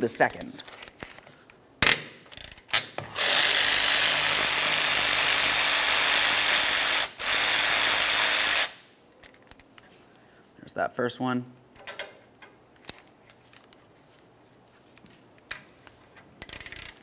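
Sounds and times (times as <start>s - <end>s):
power ratchet spinning: 3.1s - 8.8s, 16.4s - 17.0s.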